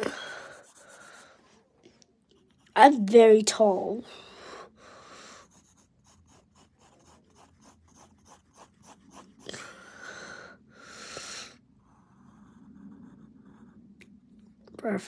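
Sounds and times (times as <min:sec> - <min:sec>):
pencil scratching on paper: 0:00.0 - 0:01.6, 0:05.4 - 0:09.5, 0:11.8 - 0:14.2.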